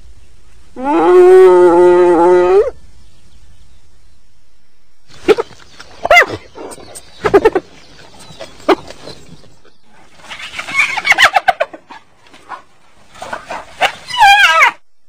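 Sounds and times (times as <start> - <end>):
hyena yelping calls: 10.2 - 12.6, 13.2 - 14.8.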